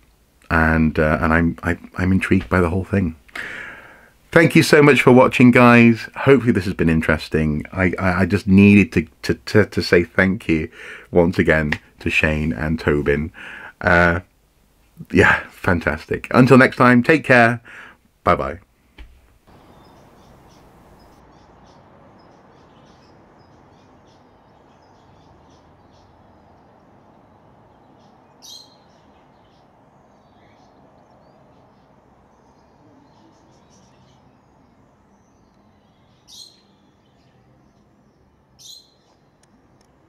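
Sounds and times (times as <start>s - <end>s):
small birds chirping: 19.4s - 40.0s
short loud bird calls: 19.5s - 26.1s, 28.0s - 32.0s, 36.2s - 37.2s, 38.6s - 39.2s.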